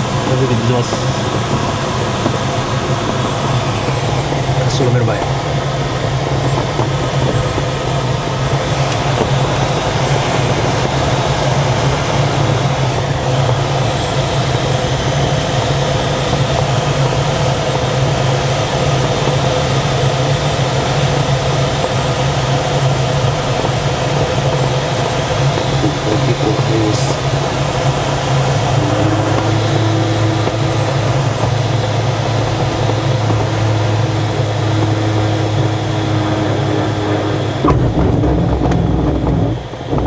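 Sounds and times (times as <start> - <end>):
rush of airflow: 22.2 - 40.0
low even hum: 25.3 - 40.0.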